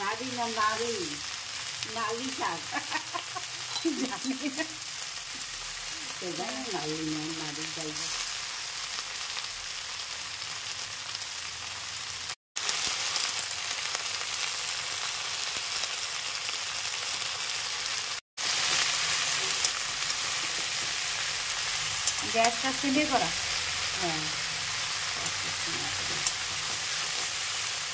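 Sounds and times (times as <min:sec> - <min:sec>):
vegetables sizzling in hot oil: 0:00.0 - 0:27.9.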